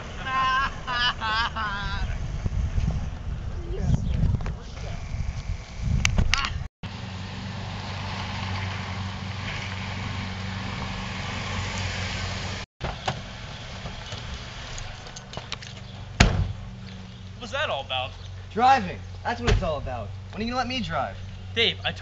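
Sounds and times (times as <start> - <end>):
car engine hum: 6.8 - 22.0.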